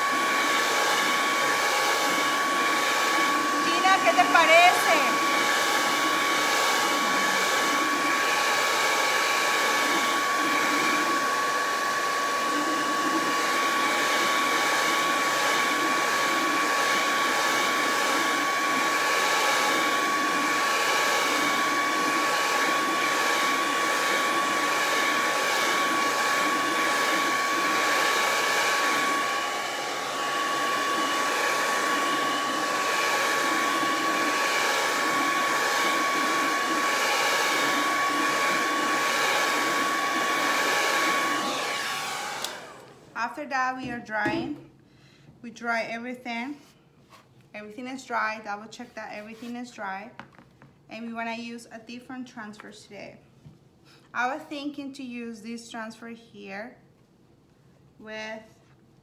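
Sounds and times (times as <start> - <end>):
hair dryer blowing: 0.0 - 44.6.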